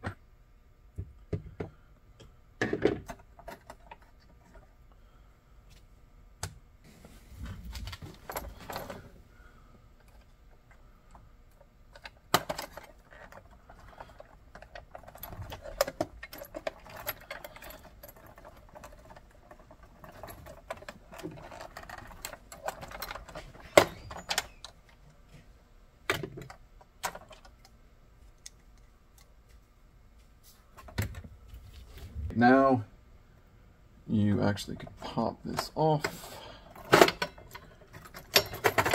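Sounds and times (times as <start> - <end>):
plastic parts clicking and rattling: 2.6 - 4.7, 10.0 - 25.1, 26.0 - 29.6, 35.5 - 38.9.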